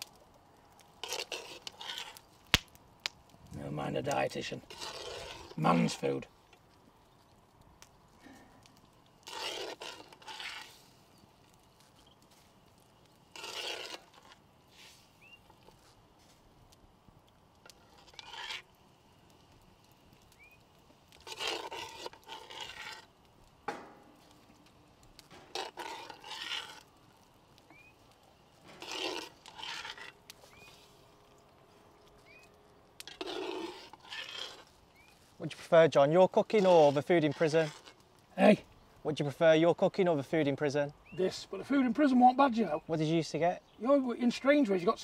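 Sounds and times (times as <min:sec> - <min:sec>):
scraping and rubbing: 0:01.0 - 0:02.3, 0:04.0 - 0:06.3, 0:09.2 - 0:11.0, 0:13.2 - 0:15.9, 0:17.6 - 0:18.7, 0:21.1 - 0:23.1, 0:25.2 - 0:27.0, 0:28.6 - 0:31.3, 0:33.0 - 0:35.4, 0:36.3 - 0:38.0.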